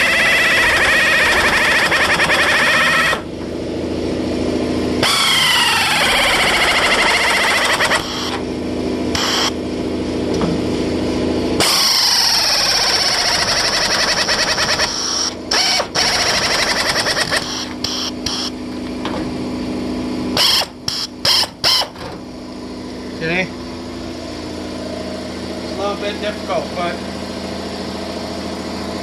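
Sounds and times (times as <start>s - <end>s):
pneumatic metal cutter cutting steel: 0.0s - 3.3s, 5.0s - 8.4s, 9.1s - 9.6s, 11.6s - 18.6s, 20.4s - 22.0s.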